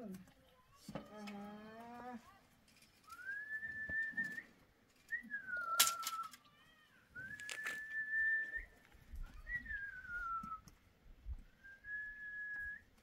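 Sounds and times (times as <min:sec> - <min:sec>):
person whistling: 0:03.1 - 0:04.5, 0:05.1 - 0:06.3, 0:07.2 - 0:08.8, 0:09.4 - 0:10.6, 0:11.6 - 0:12.9.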